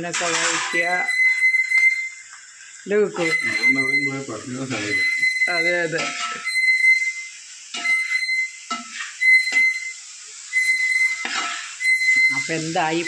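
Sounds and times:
metal ladle scraping metal pot: 0.1s - 1.8s, 5.9s - 6.6s, 10.8s - 11.8s
high squeal of stirring: 0.2s - 2.2s, 3.2s - 13.0s.

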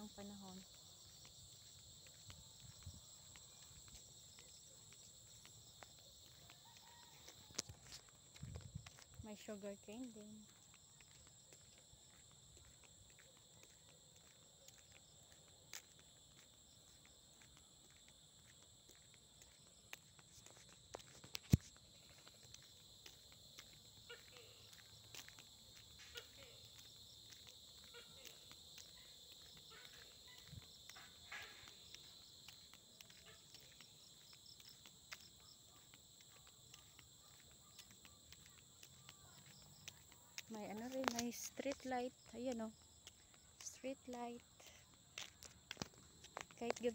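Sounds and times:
crickets trilling: 0.0s - 46.9s
footsteps and phone handling clicks: 20.3s - 21.8s, 40.7s - 41.6s.

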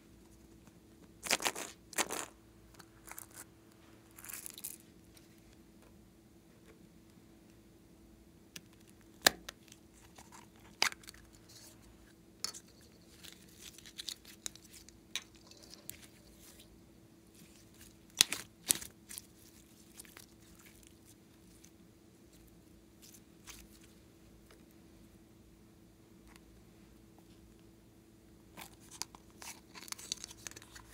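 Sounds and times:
slime crackling and squishing: 13.0s - 21.7s, 22.3s - 24.0s.

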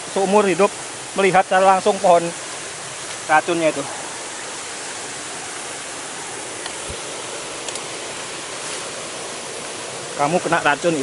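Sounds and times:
stream water rushing: 0.0s - 11.0s
faint clicks: 7.6s - 7.9s.

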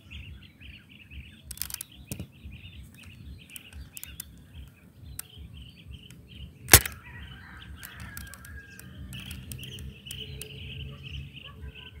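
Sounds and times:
chirping: 0.0s - 7.1s, 7.7s - 12.0s
airsoft rifle shot: 6.7s - 7.0s.

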